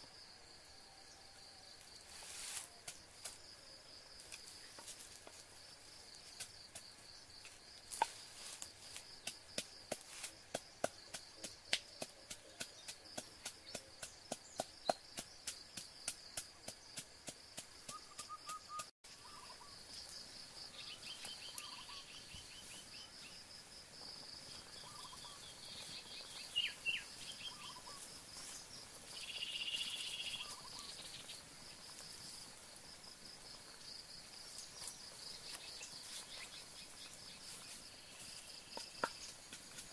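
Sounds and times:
high insect drone: 0:00.0 - 0:39.9
bird chirps: 0:17.9 - 0:20.1, 0:20.7 - 0:23.4, 0:24.5 - 0:31.4.

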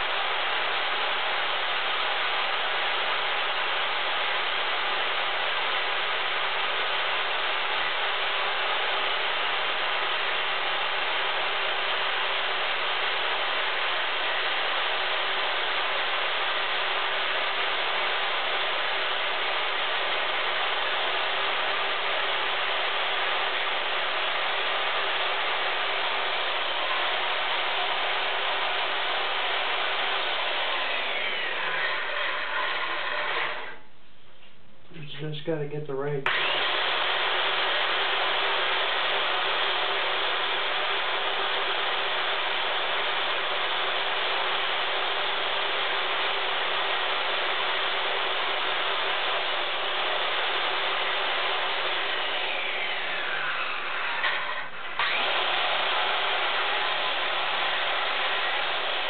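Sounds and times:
circular saw cutting wood: 0:00.0 - 0:33.8, 0:36.3 - 0:59.0.

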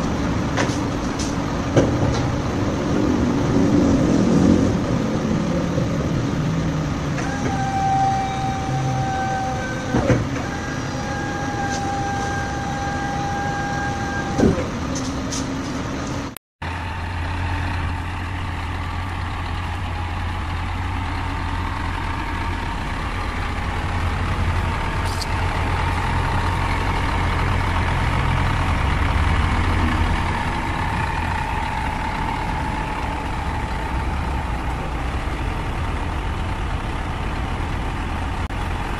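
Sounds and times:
diesel engine idling: 0:04.9 - 0:38.9
hydraulic pump whine: 0:07.2 - 0:15.1.

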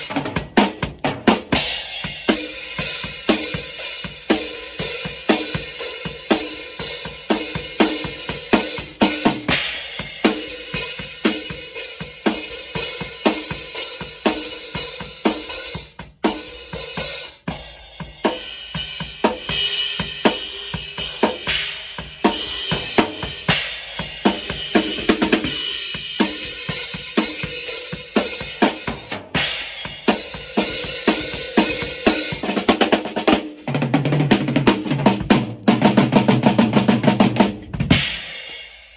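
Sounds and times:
drum kit groove: 0:00.0 - 0:38.9.

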